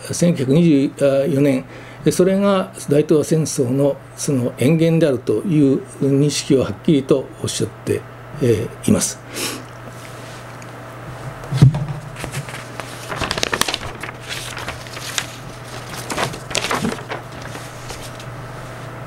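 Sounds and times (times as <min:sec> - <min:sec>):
steady low hum: 0:00.0 - 0:19.0
thump: 0:11.5 - 0:12.1.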